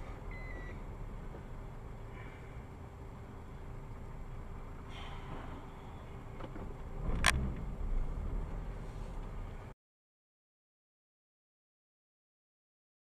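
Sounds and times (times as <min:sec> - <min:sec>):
vehicle road noise: 0:00.0 - 0:09.8
heavy rumbling: 0:04.4 - 0:09.7.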